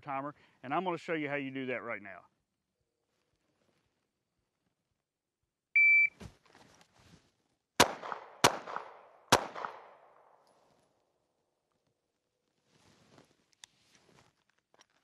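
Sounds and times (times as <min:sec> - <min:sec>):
shot timer beep: 0:05.8 - 0:06.2
pistol shots: 0:07.8 - 0:10.4.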